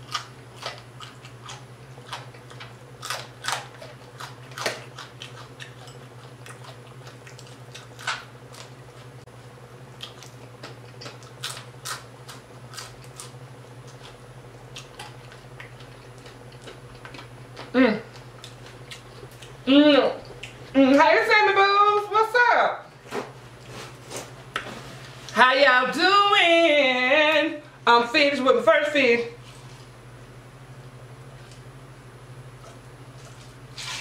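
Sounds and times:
person chewing: 0.0 - 9.2, 9.9 - 19.6, 20.2 - 20.8, 32.6 - 34.0
steady low hum: 0.0 - 34.0.

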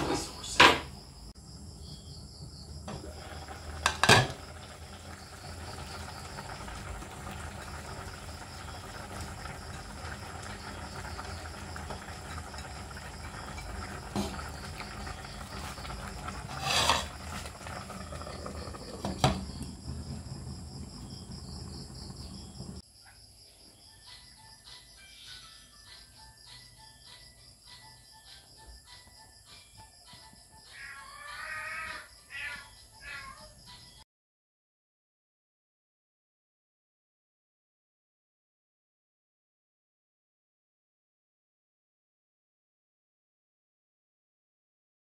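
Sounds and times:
gas stove hiss: 0.0 - 22.8
insects trilling: 0.1 - 34.0
soup simmering in a pot: 1.5 - 22.8.

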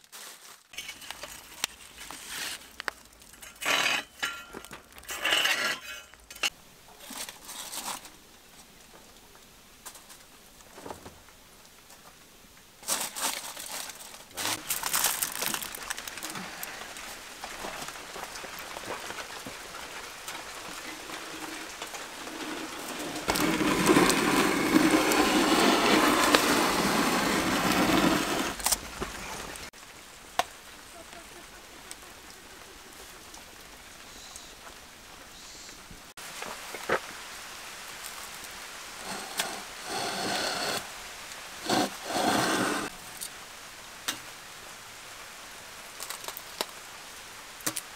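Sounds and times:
handling noises: 0.0 - 29.7
metal rake scraping embers: 0.1 - 8.2, 20.8 - 28.9, 39.0 - 40.9, 41.6 - 42.9.

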